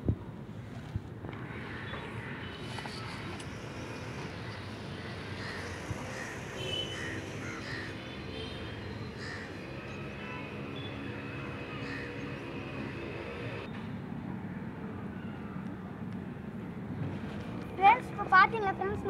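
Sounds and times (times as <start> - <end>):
outdoor background noise: 0.0 - 19.0
crows cawing: 4.5 - 8.3, 9.0 - 10.4, 11.4 - 13.6.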